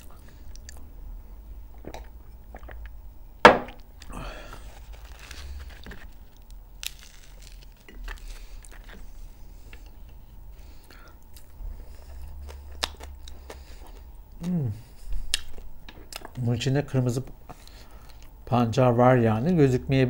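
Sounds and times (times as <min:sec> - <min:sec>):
chewing: 0:01.8 - 0:02.9, 0:04.0 - 0:10.2, 0:10.9 - 0:14.1, 0:15.0 - 0:16.4
bread crust tearing and crackling: 0:04.4 - 0:09.1.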